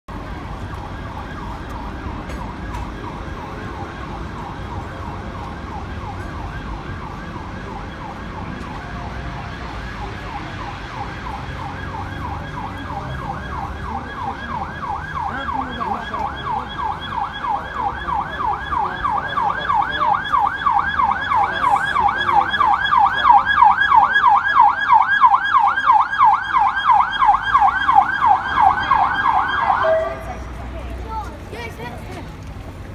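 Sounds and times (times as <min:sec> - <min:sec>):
police siren yelping: 0:00.1 - 0:30.5
street traffic rumble: 0:00.1 - 0:32.9.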